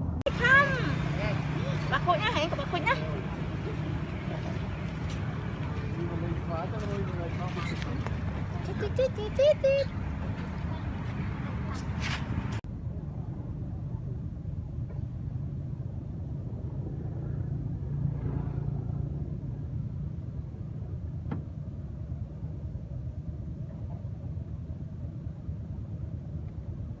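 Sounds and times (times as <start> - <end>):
low background rumble: 0.0 - 27.0.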